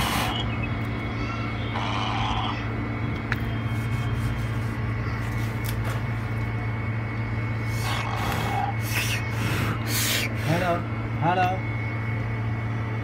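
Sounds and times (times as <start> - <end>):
machine hum: 0.0 - 13.0
thin high whine: 0.0 - 13.0.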